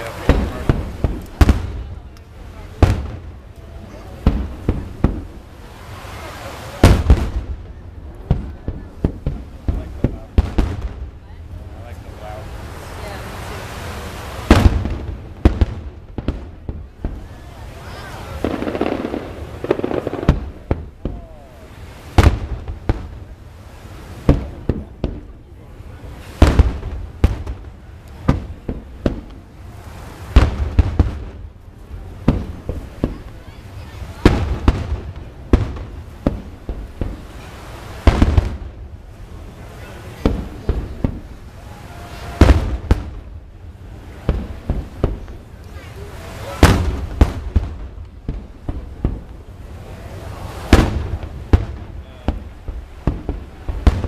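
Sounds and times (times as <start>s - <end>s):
firework shells booming: 0.0s - 13.1s, 14.1s - 54.0s
firework shells bursting: 14.2s - 21.2s, 44.1s - 49.5s.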